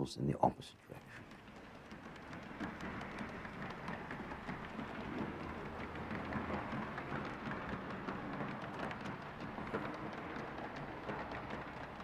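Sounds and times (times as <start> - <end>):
model trains clattering on track: 0.8 - 12.0.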